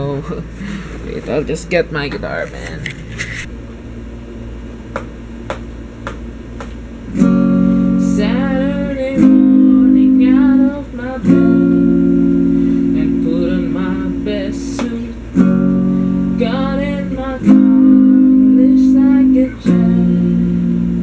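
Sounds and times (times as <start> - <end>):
electric guitar chords: 5.4 - 21.0
man singing: 13.0 - 15.2.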